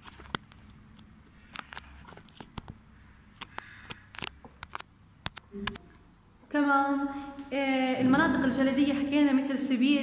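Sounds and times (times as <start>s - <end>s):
small irregular clicks: 0.0s - 6.0s.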